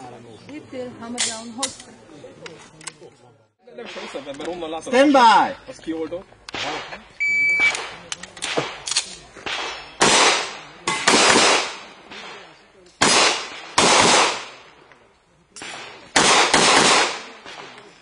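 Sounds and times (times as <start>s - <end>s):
pistol shots with echo: 7.6s - 14.7s, 15.6s - 17.9s.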